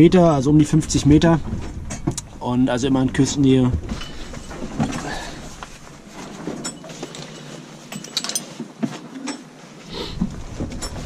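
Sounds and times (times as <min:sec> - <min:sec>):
sharp clicks and clinks: 0:06.6 - 0:08.6.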